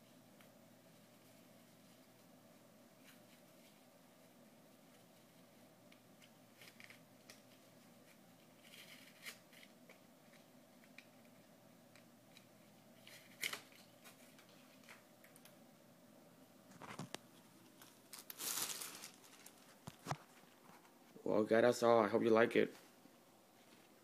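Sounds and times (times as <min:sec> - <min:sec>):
faint room hum: 0:00.0 - 0:24.0
small scrapes and clicks: 0:05.0 - 0:15.5
cloth rustling: 0:16.7 - 0:21.2.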